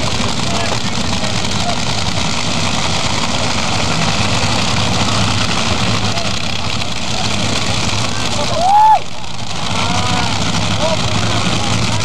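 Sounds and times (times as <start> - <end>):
engines idling: 0.0 - 12.0
faint voices: 0.0 - 12.0.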